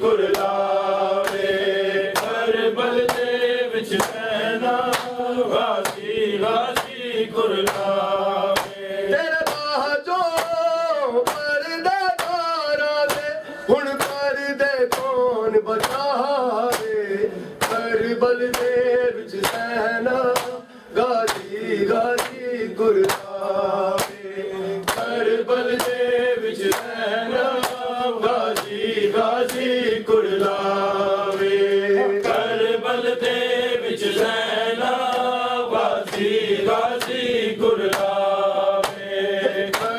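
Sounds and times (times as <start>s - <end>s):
men chanting: 0.0s - 39.9s.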